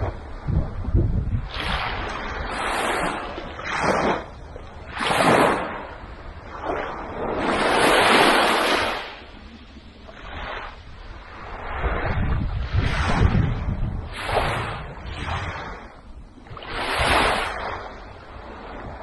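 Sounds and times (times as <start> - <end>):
waves washing over sandy beach: 0.0 - 19.0.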